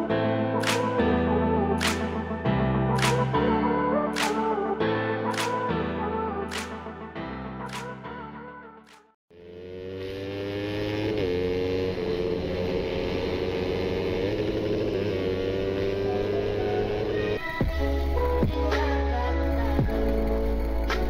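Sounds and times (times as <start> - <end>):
motorcycle engine revving: 9.3 - 18.1.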